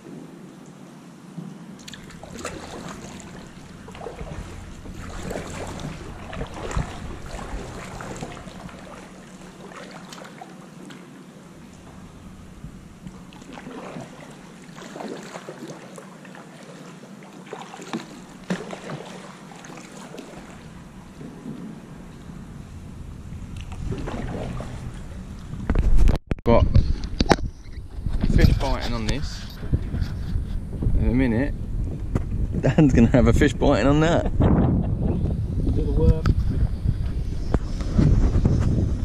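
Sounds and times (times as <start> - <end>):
water lapping around kayak: 0.0 - 26.2, 34.0 - 39.0
paddle splashes: 1.7 - 26.1.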